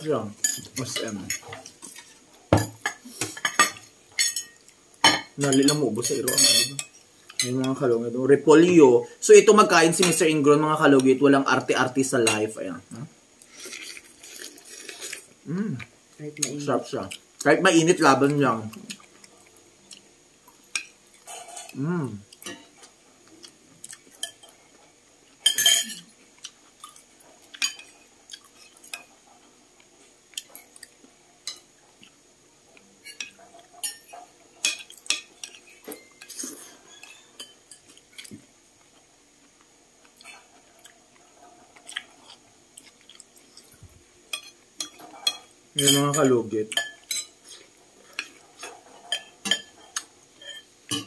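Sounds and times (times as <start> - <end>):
spoons clinking against bowls: 0.4 - 7.8, 25.4 - 26.0, 44.3 - 47.4, 48.2 - 51.0.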